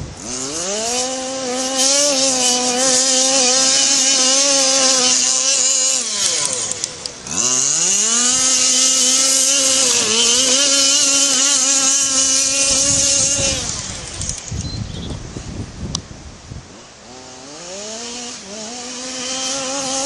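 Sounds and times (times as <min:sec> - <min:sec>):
two-stroke engine revving: 0:00.0 - 0:14.6, 0:16.6 - 0:20.0
wind on microphone: 0:07.3 - 0:16.9.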